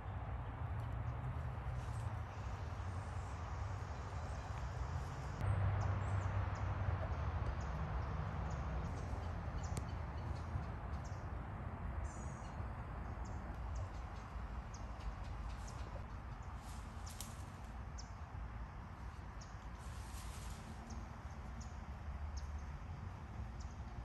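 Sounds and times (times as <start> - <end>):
outdoor background hiss: 1.6 - 6.5, 11.3 - 24.0
small birds chirping: 7.1 - 11.3, 12.0 - 18.4.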